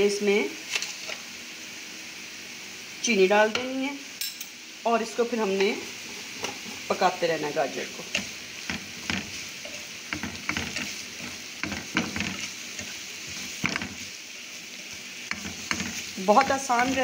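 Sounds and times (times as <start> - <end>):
carrots sizzling in oil: 0.0 - 17.0
spatula scraping and tapping pan: 5.5 - 6.9, 8.0 - 17.0.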